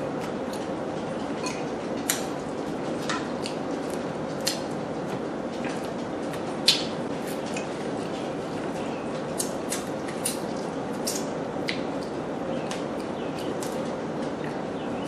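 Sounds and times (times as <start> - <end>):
wet chewing: 3.0 - 14.6.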